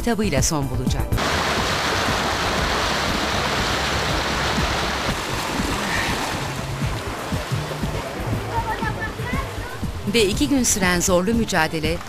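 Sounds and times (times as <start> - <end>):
paddles splashing in water: 1.2 - 10.8.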